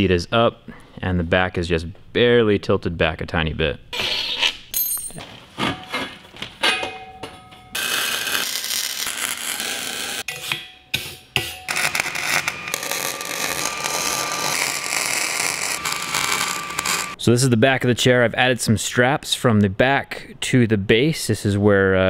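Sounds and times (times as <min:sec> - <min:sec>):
metal clinks and knocks: 0:04.7 - 0:05.3
welder arc crackling: 0:07.8 - 0:10.3, 0:11.7 - 0:17.2.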